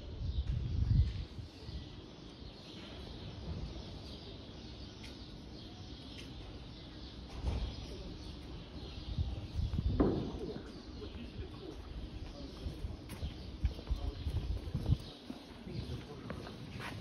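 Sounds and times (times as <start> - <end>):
wind buffeting microphone: 0.0 - 2.0, 8.8 - 16.4
quiet street ambience: 0.0 - 17.0.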